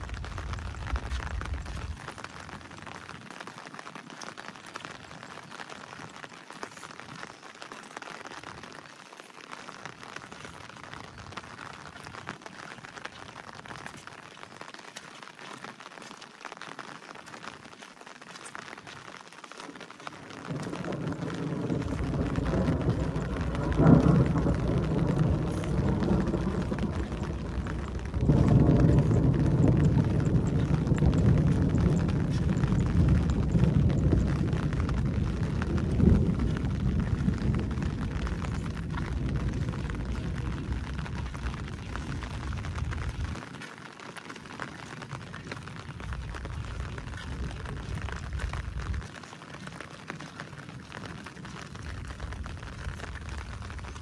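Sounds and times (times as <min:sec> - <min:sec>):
thunder rumbling: 0:00.0 - 0:03.1, 0:20.4 - 0:43.5, 0:45.4 - 0:49.2, 0:50.8 - 0:54.0
heavy rain hiss: 0:20.1 - 0:43.4
sharp thunder crack: 0:20.5 - 0:43.1.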